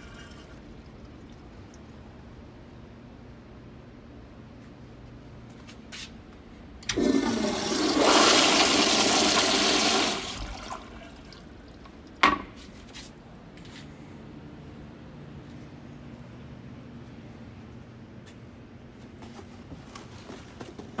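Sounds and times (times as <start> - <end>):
toilet flushing: 0.0 - 1.8, 6.9 - 12.2.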